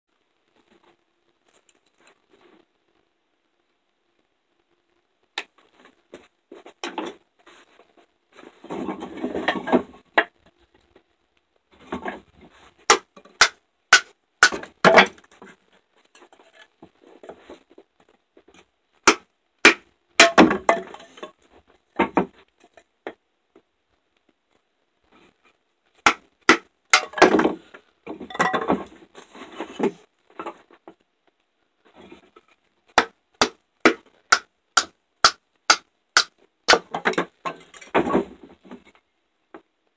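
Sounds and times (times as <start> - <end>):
rustling and scraping: 0.4 - 2.8, 5.5 - 11.1, 15.0 - 18.7, 20.6 - 22.9, 27.0 - 33.0
wooden baton striking knife: 12.9 - 15.1, 33.0 - 36.9.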